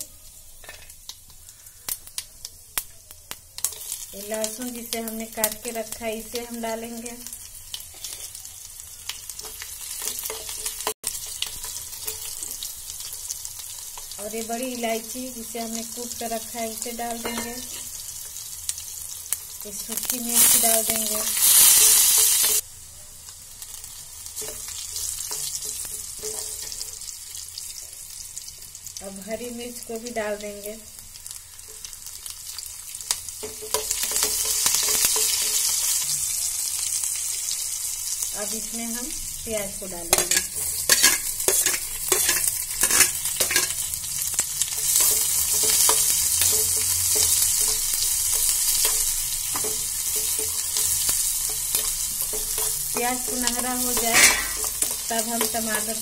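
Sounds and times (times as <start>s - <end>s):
spices sizzling in hot oil: 0.0s - 56.0s
spoon scraping pan: 24.4s - 27.0s, 40.1s - 43.9s, 44.7s - 56.0s
metal spoon clinking on pan: 40.1s - 43.8s, 44.7s - 56.0s.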